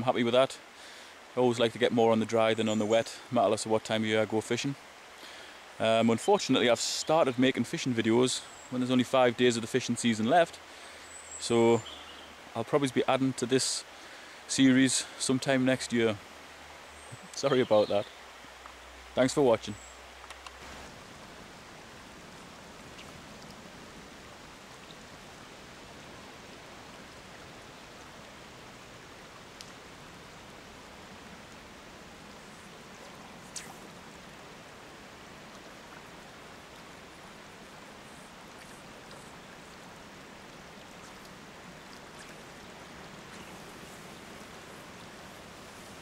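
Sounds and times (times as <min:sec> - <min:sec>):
river running over rocks: 0:00.0 - 0:46.0.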